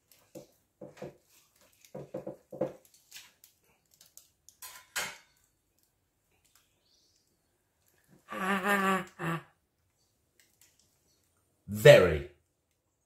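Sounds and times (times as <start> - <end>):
roast chicken tearing and cracking: 2.7 - 4.6.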